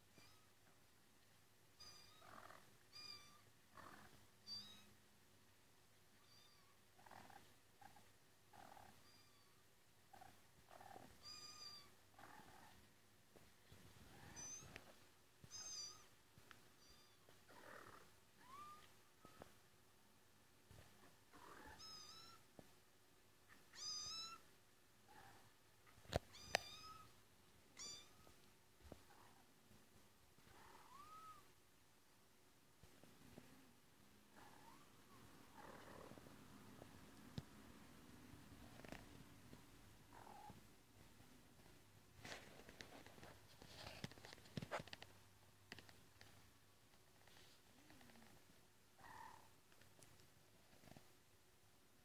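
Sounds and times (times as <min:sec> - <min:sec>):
cat purring: 0:03.7 - 0:04.2, 0:07.0 - 0:09.0, 0:12.1 - 0:12.9, 0:17.4 - 0:19.5, 0:20.7 - 0:21.8, 0:33.0 - 0:43.8, 0:47.2 - 0:51.2
soft taps and rustles: 0:13.3 - 0:15.6, 0:28.2 - 0:29.1, 0:40.5 - 0:48.5.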